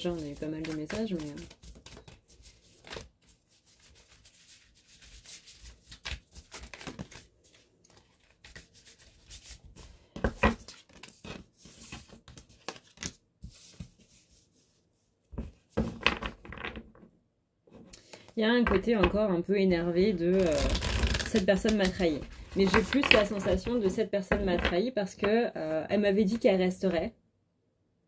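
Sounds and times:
cards being shuffled: 0.0s - 14.3s, 20.0s - 25.3s.

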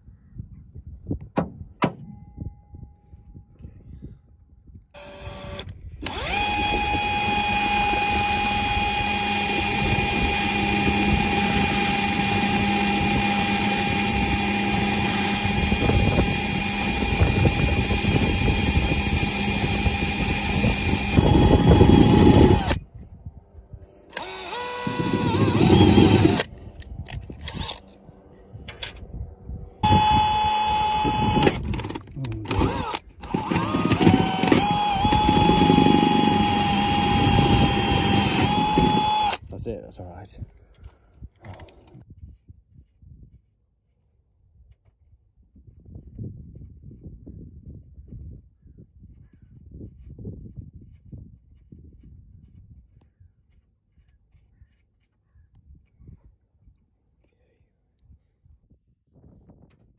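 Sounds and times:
power drill boring steel: 5.0s - 22.8s, 24.1s - 26.5s, 27.4s - 27.8s, 29.8s - 39.5s.

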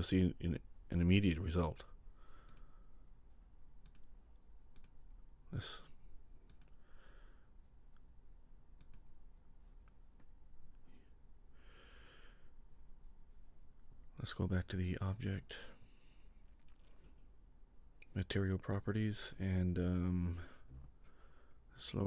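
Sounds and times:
soft breaths: 1.9s - 3.5s, 5.5s - 8.1s, 10.6s - 14.2s, 15.5s - 17.5s, 20.1s - 21.8s
computer mouse clicks: 2.4s - 2.7s, 3.8s - 5.0s, 6.4s - 6.8s, 8.7s - 9.2s.

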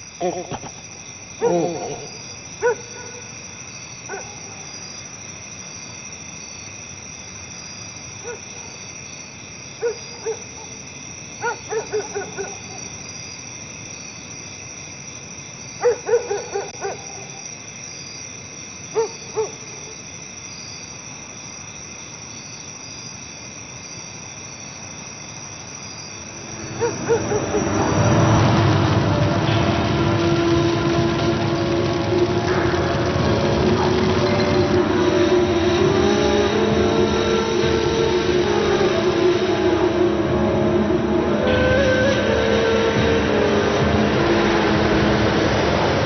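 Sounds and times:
night ambience hiss: 0.0s - 46.0s
owl hooting: 0.2s - 0.8s, 26.7s - 27.9s
low loud sound: 26.4s - 46.0s.

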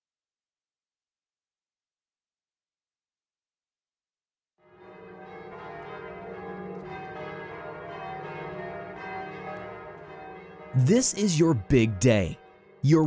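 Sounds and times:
church bells ringing: 4.6s - 13.0s.

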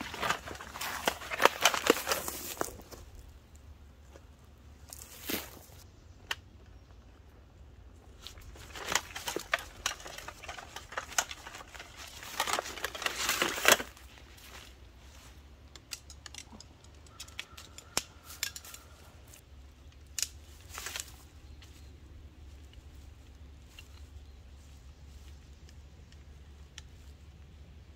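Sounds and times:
nylon sack rustling: 0.0s - 3.0s.

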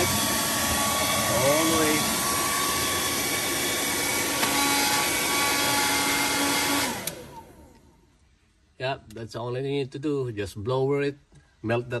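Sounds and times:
hair dryer running: 0.0s - 7.9s
motor winding down whine: 0.0s - 7.9s.

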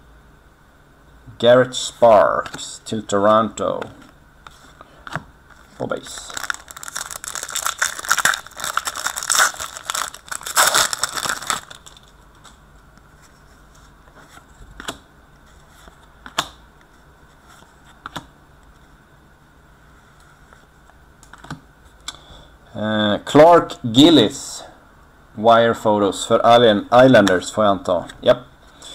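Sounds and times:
foil wrapper crinkling and tearing: 5.7s - 12.2s.

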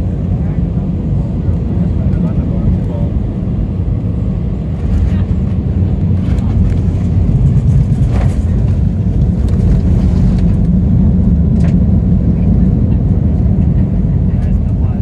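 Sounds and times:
low rumble of engines and wheels: 0.0s - 15.0s.

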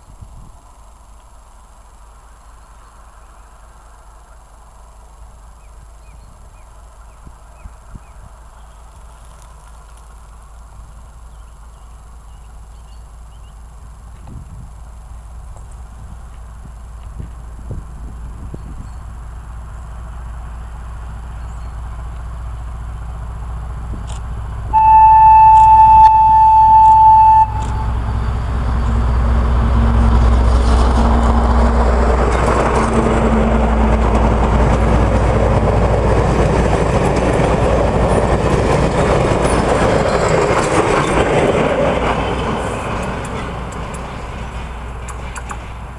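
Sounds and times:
diesel engine running: 0.0s - 45.9s
train wheels rumbling on rails: 2.6s - 45.9s
train horn blast: 24.7s - 29.0s.

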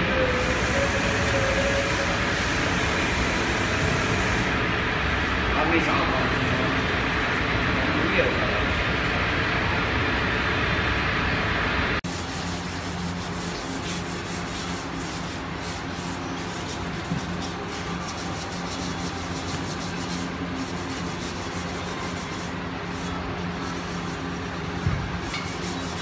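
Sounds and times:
sandpaper rubbing: 12.0s - 26.0s.

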